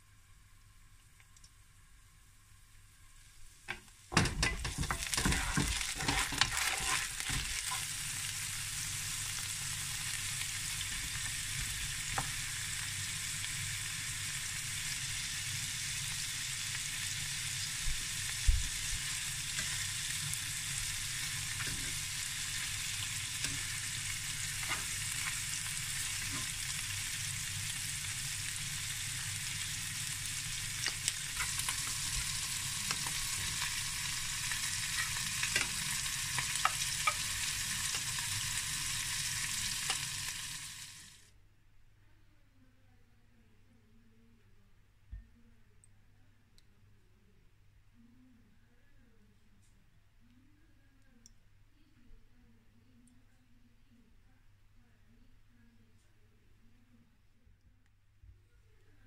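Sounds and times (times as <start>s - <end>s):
food sizzling in a pan: 3.1s - 41.3s.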